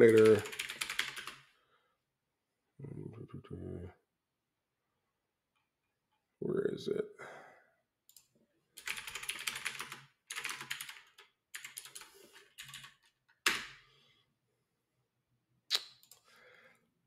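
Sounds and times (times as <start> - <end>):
typing on computer keyboard: 0.0 - 1.4, 8.8 - 13.8.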